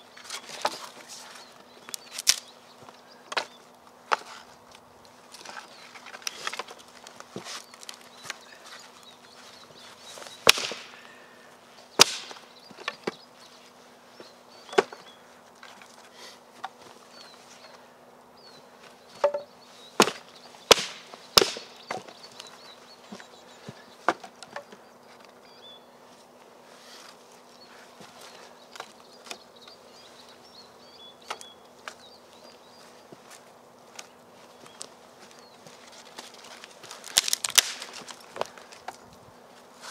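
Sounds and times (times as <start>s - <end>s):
faint birdsong: 0.0s - 39.9s
dry sticks cracking: 0.2s - 11.3s, 11.9s - 13.2s, 18.9s - 25.5s, 28.0s - 29.8s, 31.2s - 32.6s, 33.2s - 39.2s.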